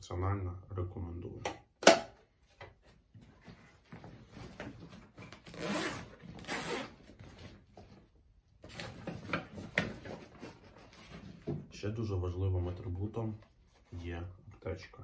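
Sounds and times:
backpack zipper pulled open: 5.4 - 7.0.

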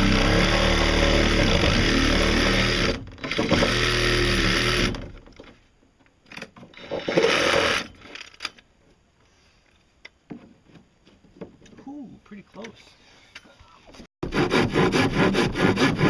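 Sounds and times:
reciprocating saw cutting: 14.2 - 16.0.

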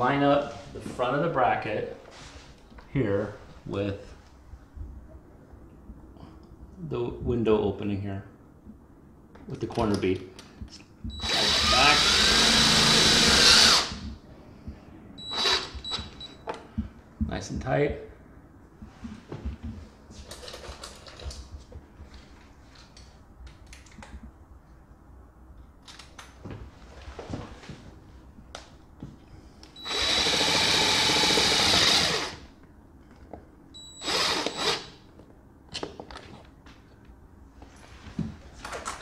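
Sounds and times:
cordless driver driving a screw: 29.8 - 32.4, 34.0 - 34.9.

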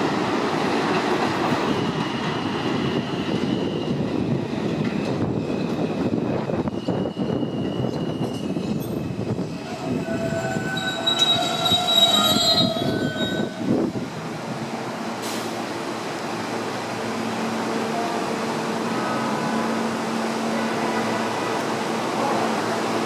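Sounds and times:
train rumble with low hum: 0.0 - 23.0
train wheels squealing: 1.5 - 13.6.

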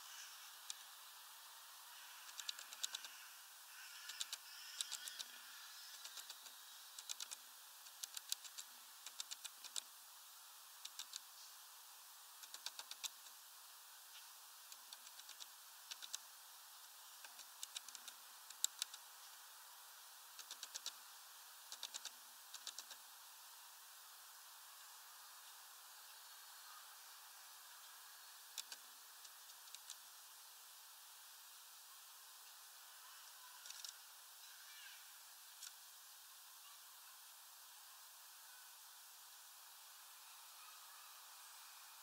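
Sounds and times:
bird pecking on wood: 2.2 - 3.2, 5.9 - 9.9, 10.8 - 11.2, 12.4 - 13.2, 14.7 - 16.2, 17.2 - 19.0, 20.4 - 21.0, 21.7 - 23.0.

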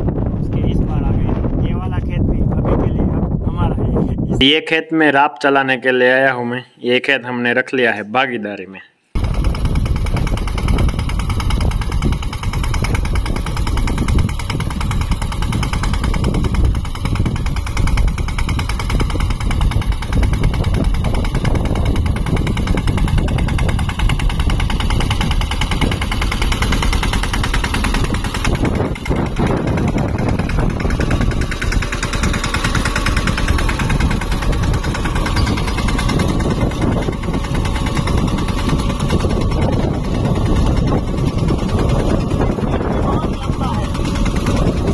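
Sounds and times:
tractor diesel engine running: 9.2 - 44.9.

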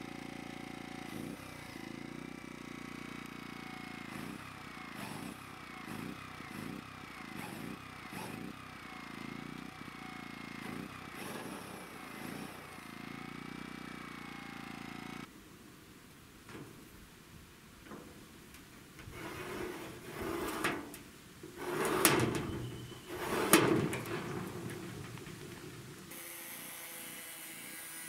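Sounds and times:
electric drill boring steel: 0.1 - 15.3, 21.5 - 28.0.

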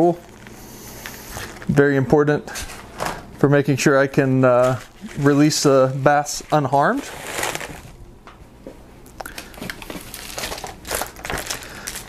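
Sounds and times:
plastic packaging crinkling: 0.1 - 0.6, 4.6 - 8.0, 9.2 - 12.0.

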